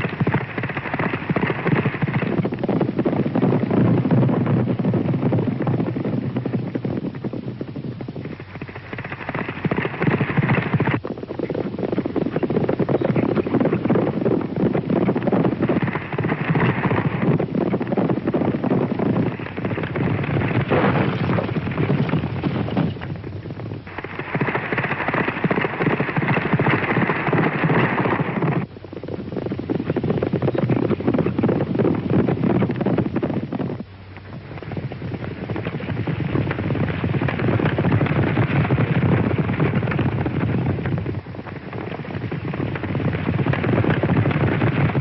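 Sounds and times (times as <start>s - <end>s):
horse hooves galloping: 0.0s - 45.0s.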